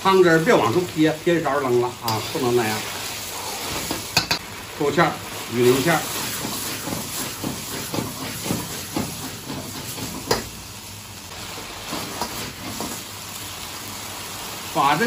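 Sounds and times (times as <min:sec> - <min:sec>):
food sizzling in a wok: 0:00.0 - 0:15.0
gas burner hissing: 0:00.0 - 0:15.0
stirring knocks in a wok: 0:05.8 - 0:10.6, 0:11.6 - 0:13.1
wok being tossed: 0:06.0 - 0:10.6.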